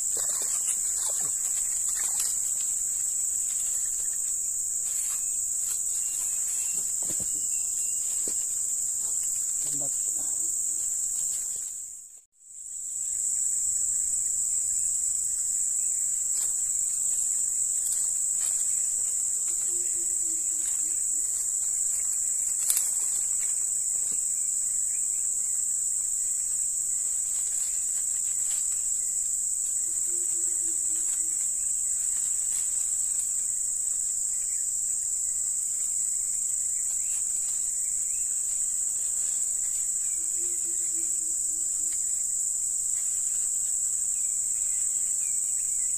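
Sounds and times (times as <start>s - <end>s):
insects droning: 0.0s - 45.9s.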